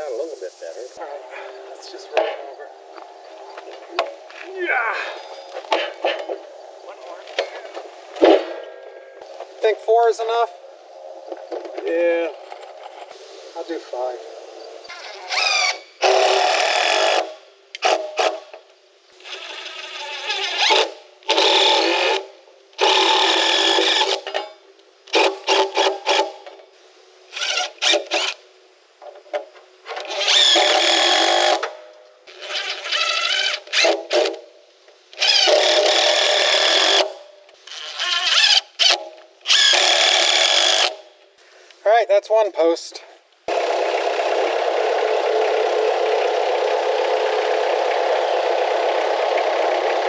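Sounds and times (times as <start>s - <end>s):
cordless drill driving screws: 14.9s - 18.4s, 19.2s - 24.3s, 27.3s - 28.4s, 30.0s - 31.7s, 35.2s - 37.1s, 37.7s - 41.0s
quick drill trigger bursts: 37.7s - 41.0s.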